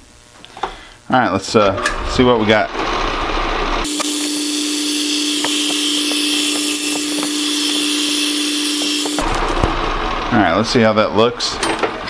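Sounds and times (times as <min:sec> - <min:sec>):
metal lathe spinning: 0:03.8 - 0:09.5
knurling tool hiss with ticks: 0:03.9 - 0:09.2.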